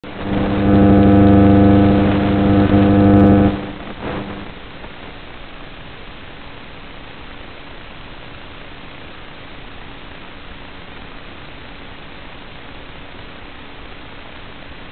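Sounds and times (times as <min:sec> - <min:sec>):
electric motor buzzing hum: 0:00.0 - 0:04.5
steady hiss: 0:00.0 - 0:14.9.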